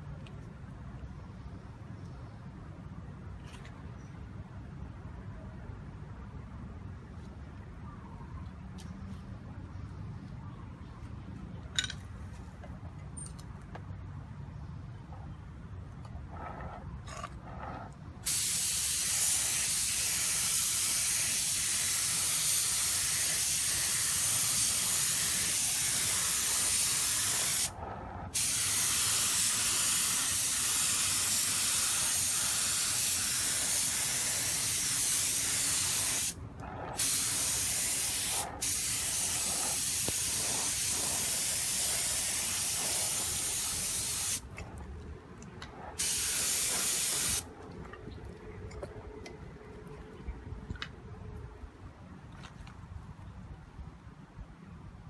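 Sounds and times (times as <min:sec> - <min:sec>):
paint spray gun hissing: 0:18.2 - 0:36.4, 0:37.0 - 0:44.4, 0:46.0 - 0:47.5.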